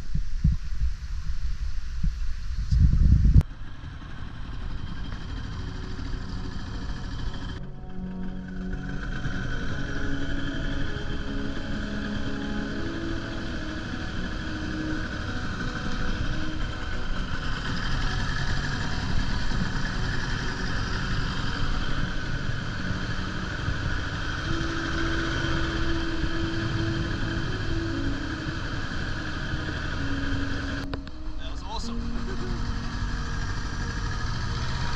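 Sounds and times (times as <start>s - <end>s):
outboard motor running: 3.4s - 34.9s.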